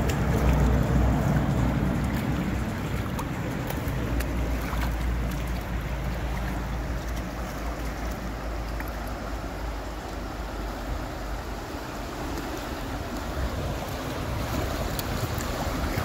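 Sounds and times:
river current rushing: 0.0s - 16.0s
wind buffeting microphone: 12.8s - 16.0s.

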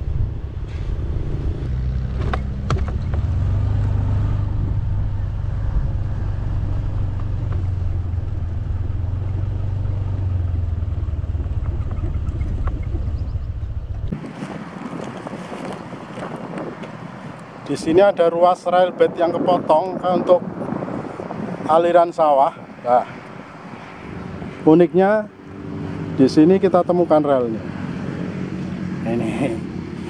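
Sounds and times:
wind and grass rustling: 0.0s - 30.0s
knocks from bumps: 2.1s - 3.4s.

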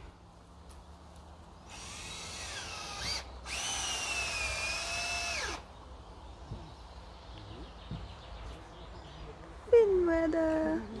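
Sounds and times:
power drill running: 1.7s - 5.6s.

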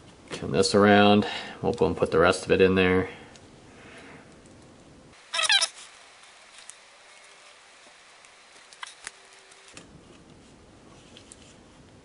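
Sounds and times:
high chirping squeak: 5.3s - 5.8s.

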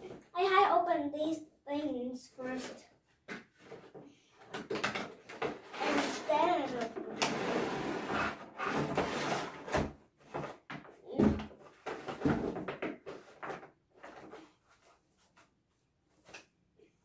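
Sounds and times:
cardboard rustling and scraping: 5.4s - 10.6s.

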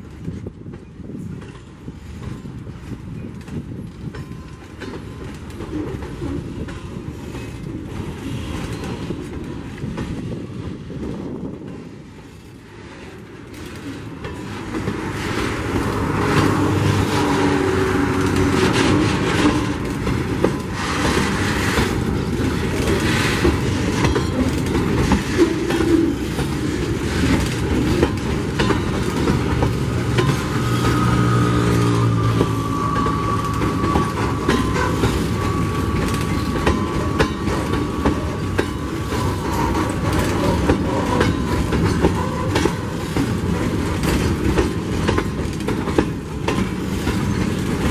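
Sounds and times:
train wheels clattering over rail joints: 0.0s - 47.9s
high wheel squeal: 30.2s - 43.1s.

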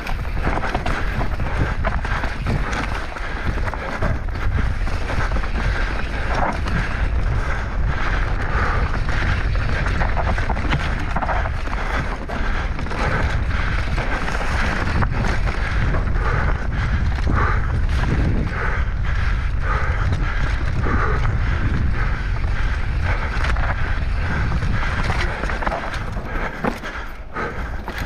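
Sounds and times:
bike rattling on trail: 0.0s - 28.0s
wind buffeting microphone: 0.0s - 28.0s.

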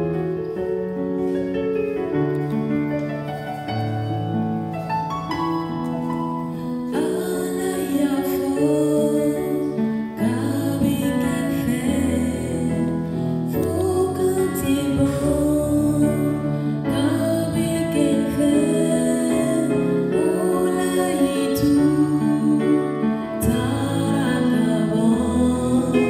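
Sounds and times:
keyboard sustained chords: 2.3s - 26.0s
woman singing into microphone: 6.9s - 26.0s.

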